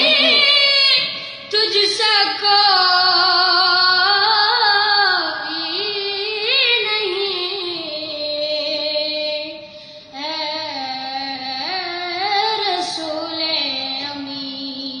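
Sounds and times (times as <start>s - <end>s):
boy singing solo: 0.0s - 7.2s.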